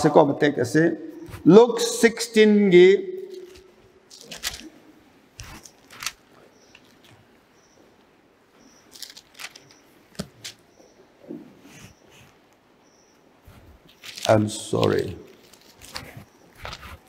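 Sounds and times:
paper pages rustling: 3.3 - 4.7, 5.4 - 7.2, 8.9 - 10.6, 13.8 - 17.0.

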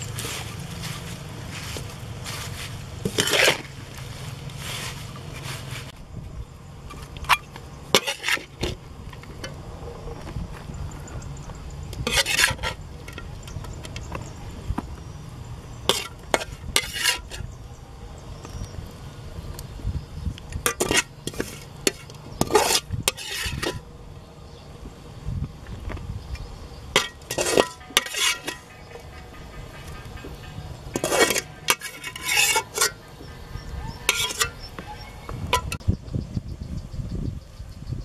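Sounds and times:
metal spatula scraping wok: 0.0 - 6.0, 6.9 - 8.8, 12.0 - 13.8, 15.8 - 17.5, 20.6 - 23.9, 26.9 - 35.8.

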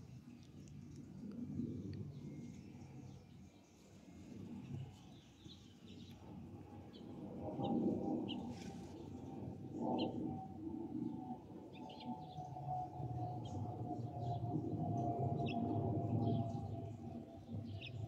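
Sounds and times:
airliner rumble and whistle: 6.2 - 18.0.

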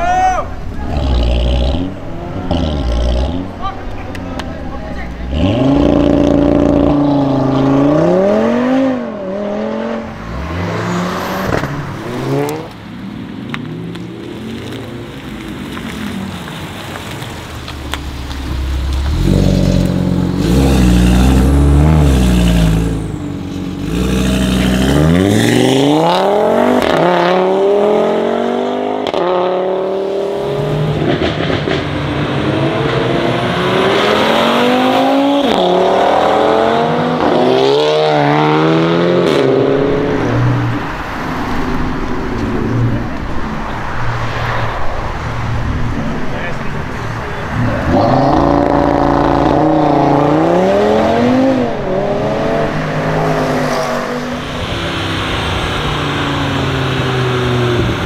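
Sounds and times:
car engines accelerating hard: 0.5 - 58.0.

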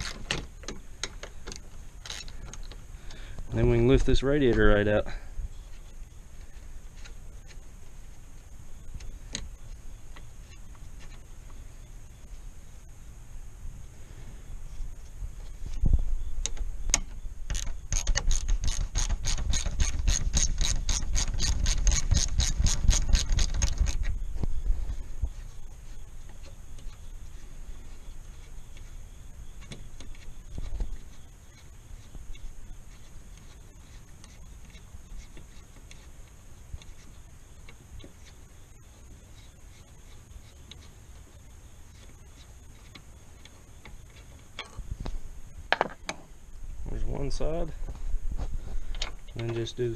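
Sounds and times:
ratchet clicking: 16.4 - 24.0.

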